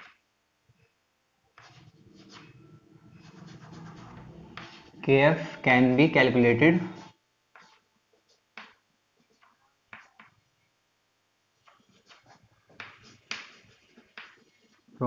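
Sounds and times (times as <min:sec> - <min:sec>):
chalk writing on chalkboard: 0:01.6 - 0:05.6, 0:06.9 - 0:10.4, 0:11.6 - 0:15.0.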